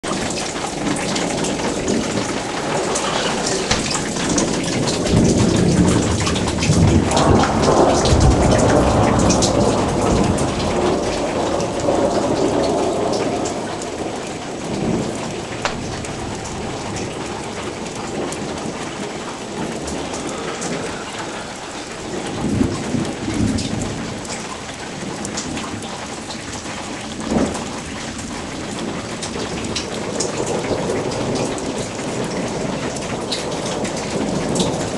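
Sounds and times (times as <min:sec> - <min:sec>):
thunder rumbling: 0:00.0 - 0:24.4
heavy rain falling: 0:00.0 - 0:34.9
brief loud burst: 0:15.7 - 0:17.6.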